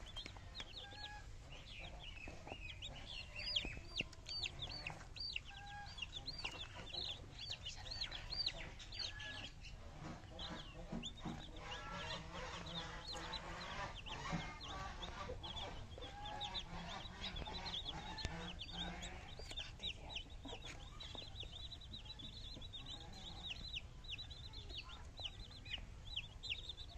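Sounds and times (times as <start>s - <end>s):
chicks peeping: 0.0s - 26.9s.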